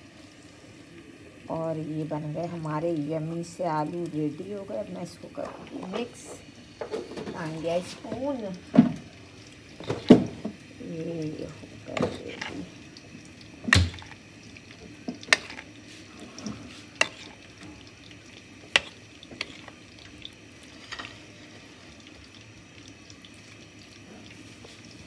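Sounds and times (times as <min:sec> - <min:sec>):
soft wet stirring: 0:11.6 - 0:25.0.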